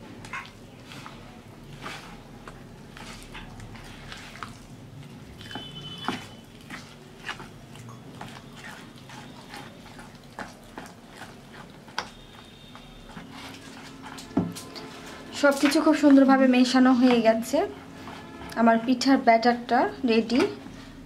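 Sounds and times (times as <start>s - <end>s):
spoon stirring thick batter: 0.0s - 20.7s
spoon scraping bowl: 0.3s - 2.3s, 2.9s - 4.6s, 5.4s - 16.2s, 17.0s - 18.7s.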